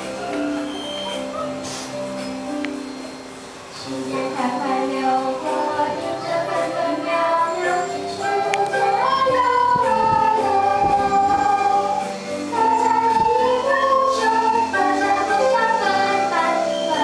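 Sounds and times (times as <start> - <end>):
children playing recorders: 0.0 - 3.3, 5.9 - 17.0
girl singing into a microphone: 3.8 - 17.0.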